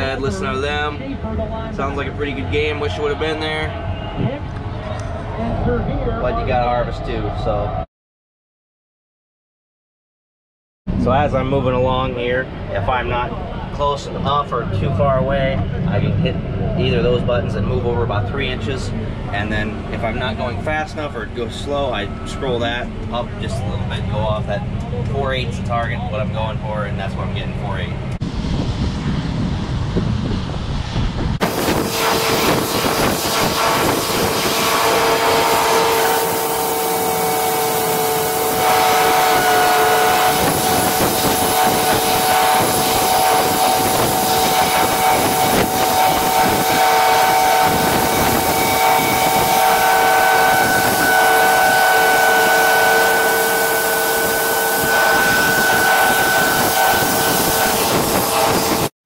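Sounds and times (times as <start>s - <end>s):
low cab rumble: 10.9s - 31.4s
rushing hiss of grain and wind: 28.2s - 49.8s, 54.3s - 58.9s
machine whines: 31.4s - 58.9s.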